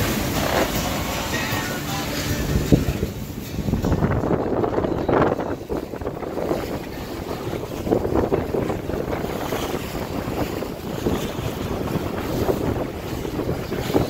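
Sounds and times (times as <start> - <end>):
water rushing along a hull: 0.0 - 14.0
wind buffeting the microphone: 0.0 - 14.0.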